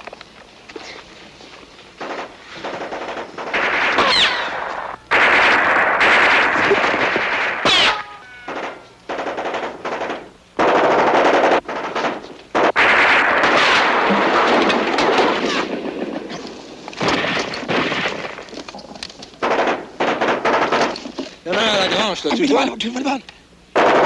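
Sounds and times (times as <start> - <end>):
machine-gun fire bursts: 2.0 - 16.4, 17.0 - 18.4, 19.4 - 22.1, 23.7 - 24.0.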